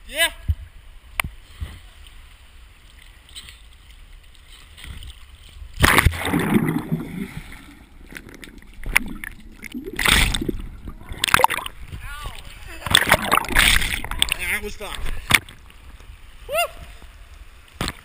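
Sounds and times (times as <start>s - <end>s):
water lapping and gurgling: 1.8s - 18.0s
loud splash into water: 5.8s - 11.8s, 12.8s - 14.4s
churning bubbling water: 5.8s - 15.6s.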